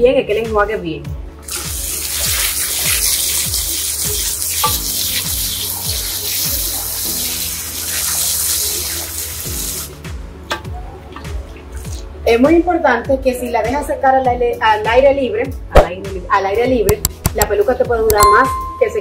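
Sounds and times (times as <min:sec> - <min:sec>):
background music with steady beat: 0:00.0 - 0:19.0
shower sprayer spraying water: 0:01.4 - 0:10.0.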